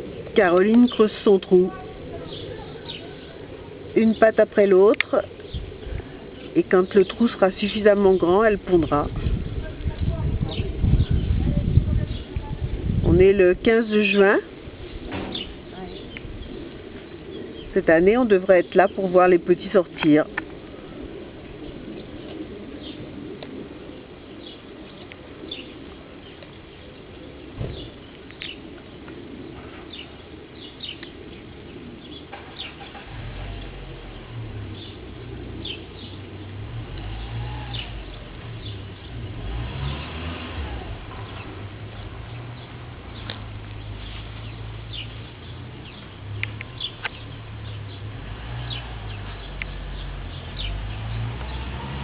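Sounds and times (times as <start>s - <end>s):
low outdoor hum: 0.0s - 52.0s
small birds chirping: 0.0s - 52.0s
dull thump: 15.1s - 15.5s, 27.6s - 28.0s.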